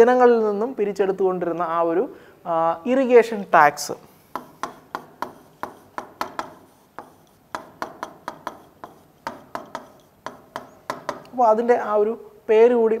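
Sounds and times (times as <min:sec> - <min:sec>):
marker pen tapping on whiteboard: 0:04.3 - 0:11.4.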